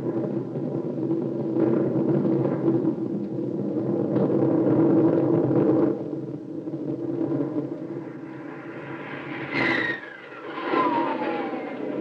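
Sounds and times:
aircraft engine rumble: 0.0s - 12.0s
rising aircraft whine: 6.3s - 12.0s.

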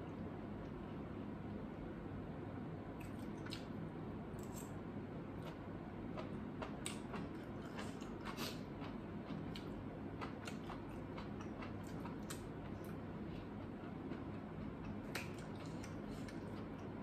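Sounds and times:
chewing: 5.4s - 17.0s.

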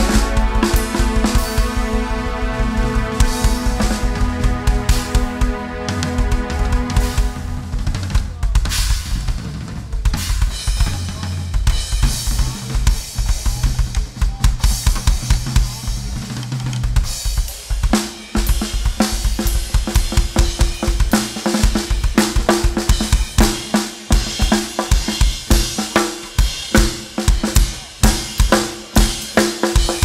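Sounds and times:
low pitched note: 0.0s - 8.6s
drum kit solo: 0.0s - 30.0s.

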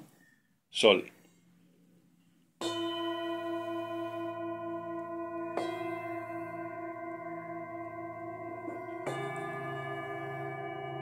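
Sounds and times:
singing bowls ringing: 2.6s - 11.0s.

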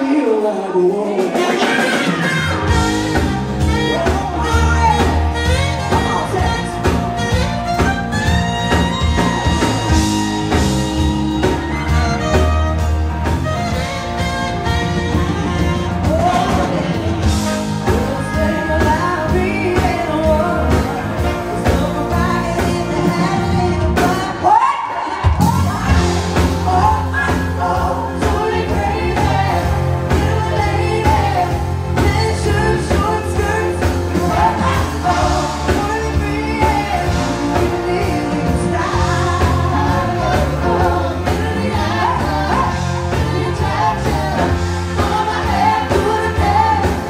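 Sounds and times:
live band playing: 0.0s - 47.0s.

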